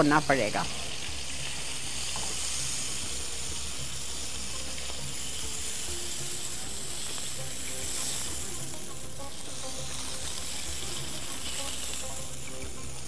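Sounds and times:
kebabs sizzling in oil: 0.0 - 13.0.

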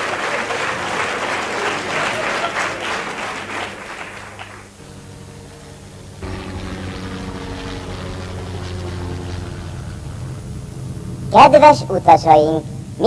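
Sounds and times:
audience applauding: 0.0 - 5.8
faint steady multi-tone hum: 0.0 - 13.0.

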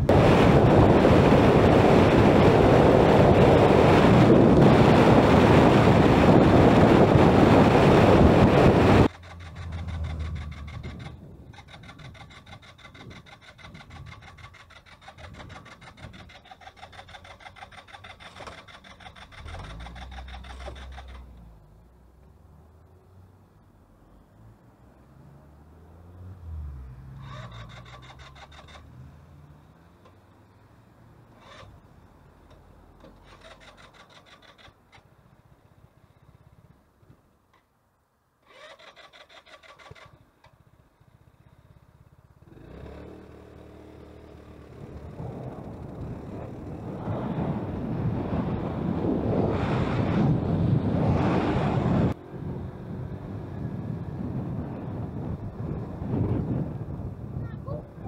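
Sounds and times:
wind rushing over microphone: 0.0 - 14.5, 44.7 - 58.0.

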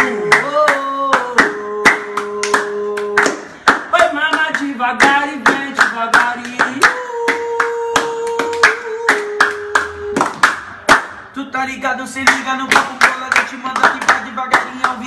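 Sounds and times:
person singing: 0.0 - 10.5
hand claps keeping a beat: 0.0 - 11.4, 12.1 - 15.0.

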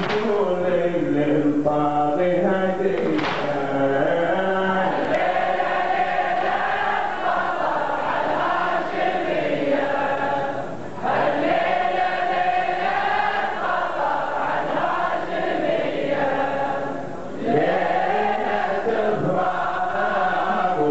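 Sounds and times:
crowd chanting in unison: 2.7 - 20.9.

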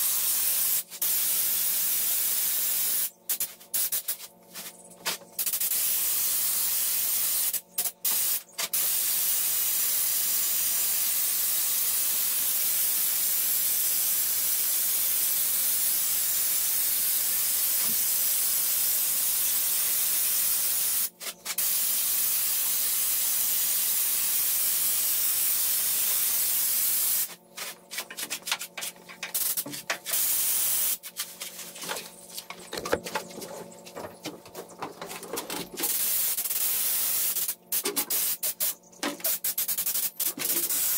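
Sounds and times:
spray gun hissing: 0.0 - 4.7, 5.4 - 27.4, 29.3 - 31.0, 35.8 - 40.9.

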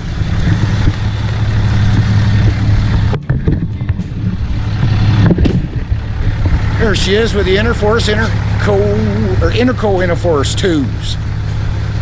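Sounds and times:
engine idling: 0.0 - 12.0.

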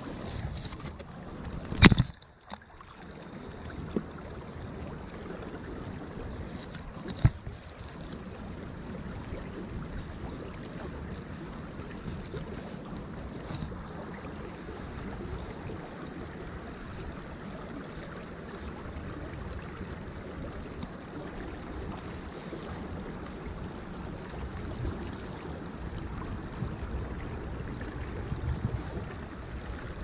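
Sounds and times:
creek water rushing over stones: 0.0 - 30.0
wind rumble on microphone: 3.5 - 30.0.

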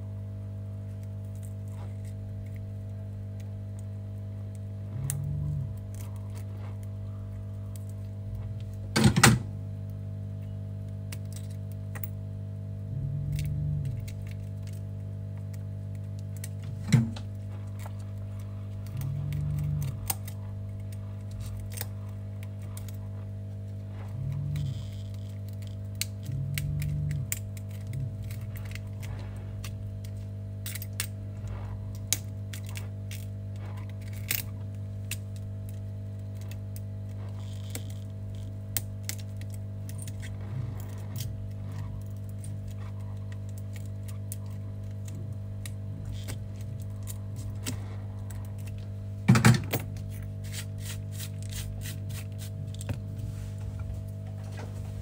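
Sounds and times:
low hum: 0.0 - 55.0.

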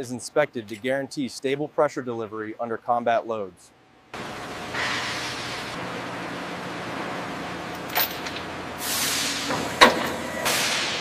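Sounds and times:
air hissing: 8.8 - 9.7.

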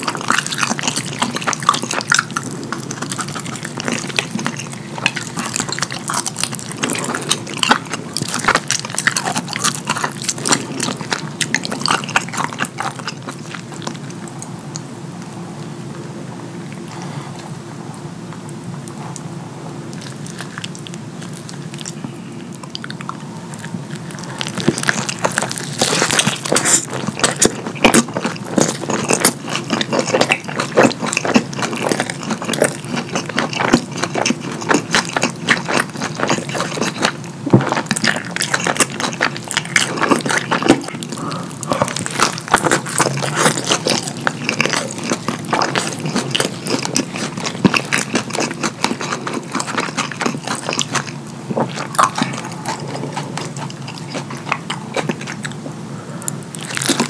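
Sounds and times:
wet smacking chewing: 0.0 - 14.9, 19.9 - 57.0.

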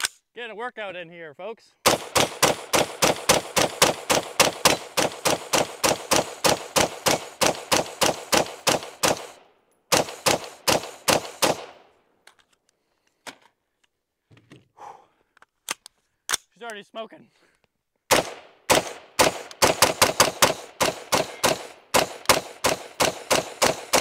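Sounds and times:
rifle firing rapid shots: 1.8 - 11.8, 18.1 - 24.0.

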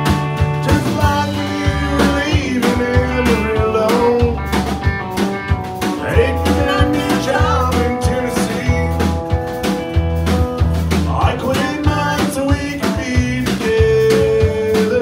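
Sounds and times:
bass line: 0.0 - 15.0
drums: 0.0 - 15.0
strummed acoustic guitar: 0.0 - 15.0
man singing: 0.6 - 4.6, 6.0 - 9.3, 11.0 - 15.0.

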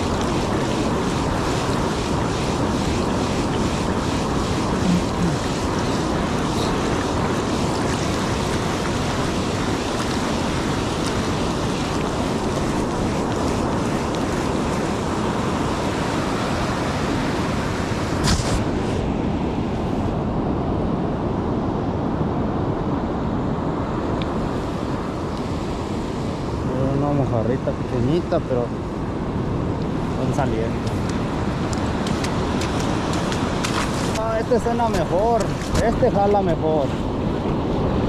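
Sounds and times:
surf breaking on sandy beach: 0.0 - 19.8, 30.0 - 38.0
wind on microphone: 0.0 - 38.0.

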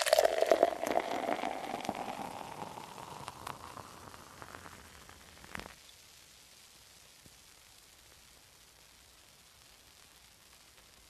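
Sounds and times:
beer pouring into a glass: 0.0 - 5.8
foam fizzing and crackling: 0.0 - 11.0.

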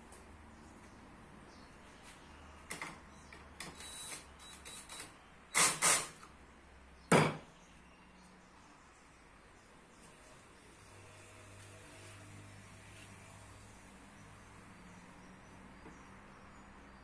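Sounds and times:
drill set down on workbench: 7.1 - 7.4.

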